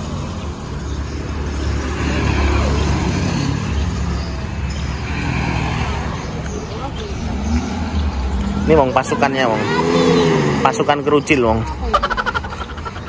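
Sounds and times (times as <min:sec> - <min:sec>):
jeep engine rumbling: 0:00.0 - 0:13.0.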